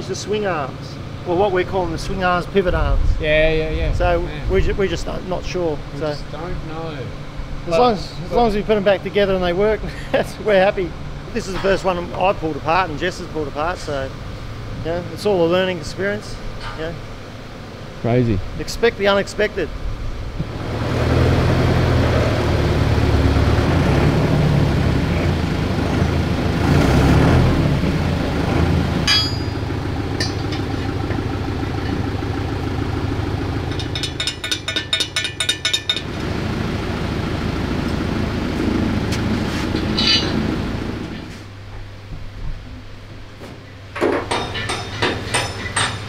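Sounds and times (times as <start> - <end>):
metallic clinks: 29.1 - 30.7, 33.7 - 36.1, 40.0 - 40.4, 44.2 - 46.0
fast rattle: 33.6 - 36.1.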